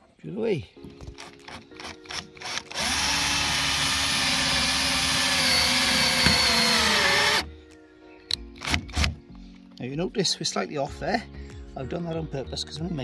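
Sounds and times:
electric drill boring through metal: 0:01.5 - 0:07.5.

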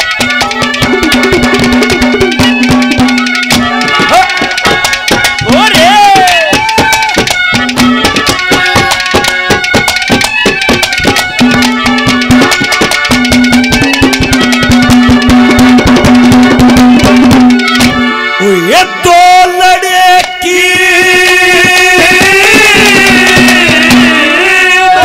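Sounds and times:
hand drum strokes: 0:00.0 - 0:18.1.

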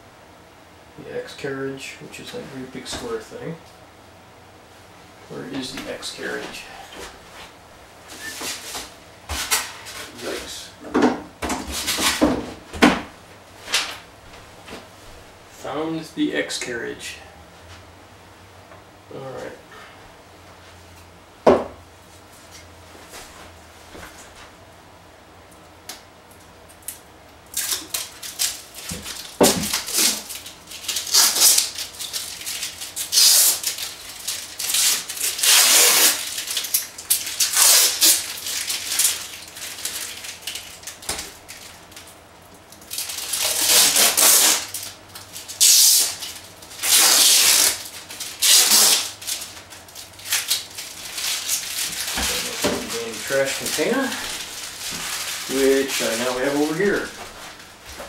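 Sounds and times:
paper backing peeling off: 0:27.6 - 0:42.0, 0:42.8 - 0:57.6.

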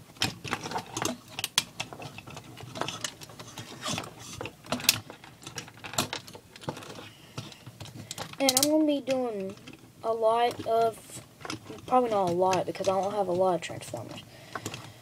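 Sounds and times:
plastic toy parts clicking: 0:03.9 - 0:09.8, 0:10.4 - 0:14.9.

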